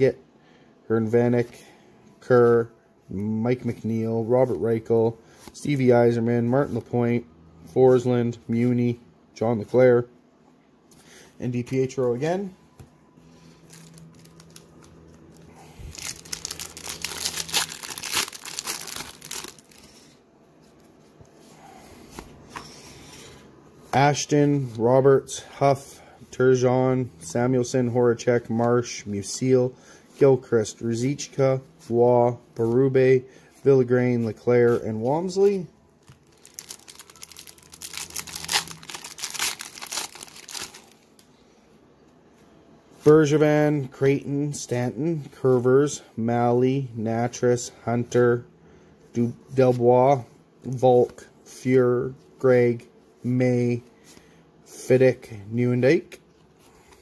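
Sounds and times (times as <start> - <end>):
cards rustling: 13.3 - 20.1, 34.7 - 41.2
foil wrapper crinkling and tearing: 13.6 - 20.0, 36.0 - 41.0.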